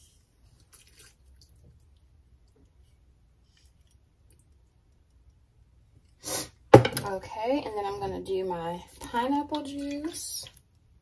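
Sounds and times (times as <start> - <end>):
sharp knock on hard surface: 6.7 - 7.0.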